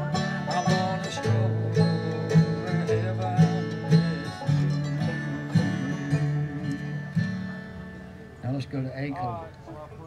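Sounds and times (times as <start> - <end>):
bluegrass string band playing: 0.0 - 10.0.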